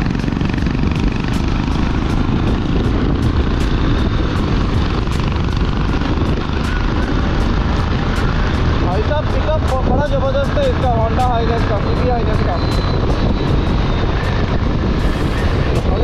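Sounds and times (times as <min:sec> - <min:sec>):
motorcycle engine running: 0:00.0 - 0:16.0
wind rumble: 0:00.0 - 0:16.0.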